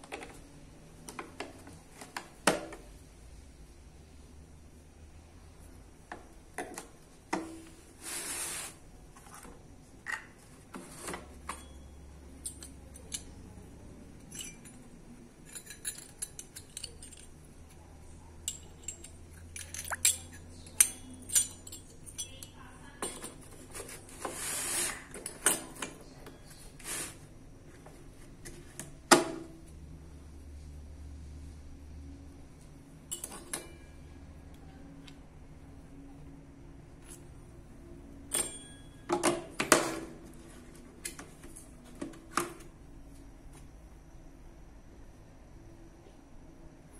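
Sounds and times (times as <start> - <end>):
metal bits clinking: 14.2 - 17.4, 18.5 - 22.5.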